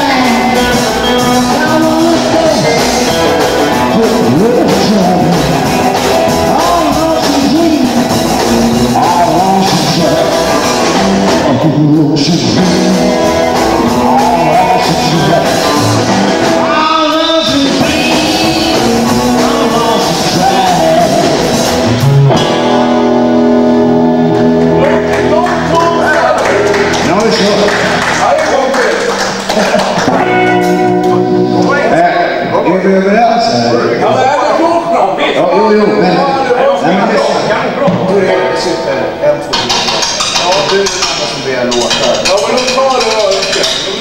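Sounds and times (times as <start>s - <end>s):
drums: 0.0s - 34.1s, 35.8s - 44.0s
electric guitar: 0.0s - 34.8s
bass guitar: 0.0s - 44.0s.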